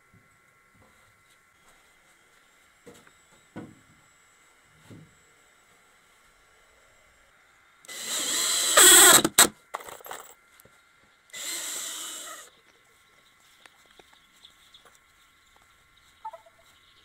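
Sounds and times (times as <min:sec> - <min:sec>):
cordless drill driving screws: 0:07.9 - 0:09.5, 0:11.3 - 0:12.5.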